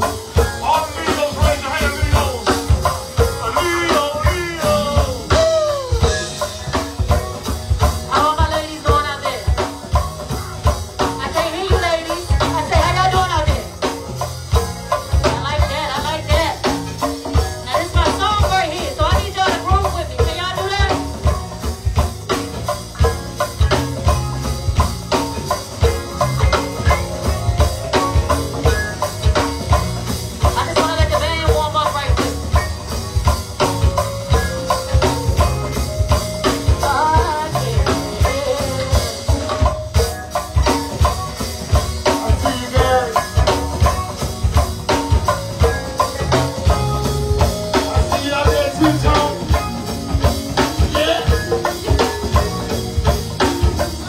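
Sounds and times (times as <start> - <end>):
bass line: 0.0 - 54.0
drum kit and congas: 0.0 - 54.0
people singing: 3.4 - 6.3.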